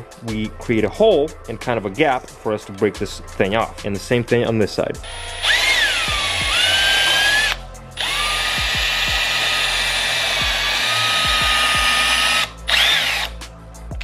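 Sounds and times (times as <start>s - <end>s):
cordless drill boring into plastic gear: 5.0s - 13.4s.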